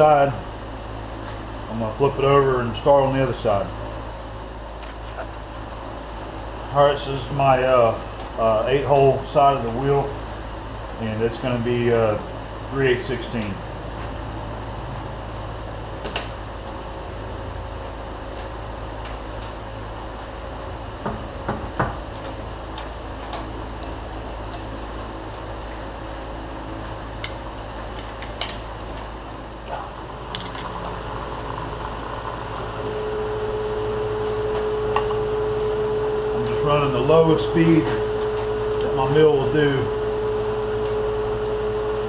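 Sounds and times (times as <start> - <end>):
machine shop hum: 0.0 - 42.0
milling spindle drilling steel: 29.9 - 42.0.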